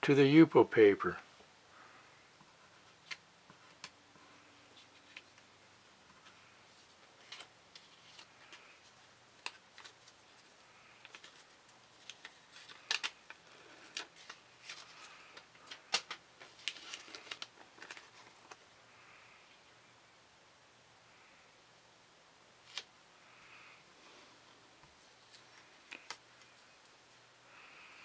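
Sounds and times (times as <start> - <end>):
plastic film crinkling and crackling: 6.8 - 18.6.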